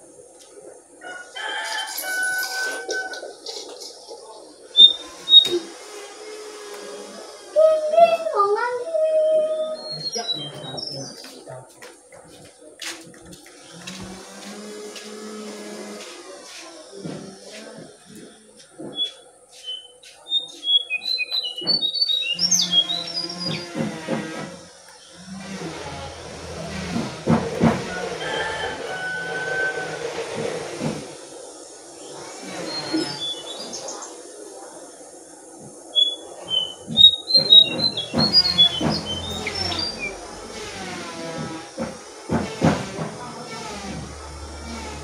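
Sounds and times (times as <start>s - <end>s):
bird whistling: 4.7s - 5.7s, 9.1s - 11.2s, 18.9s - 23.6s, 32.6s - 34.0s, 35.9s - 40.1s
dull knocks: 26.4s - 28.6s, 36.9s - 44.1s
low hum: 37.6s - 45.0s.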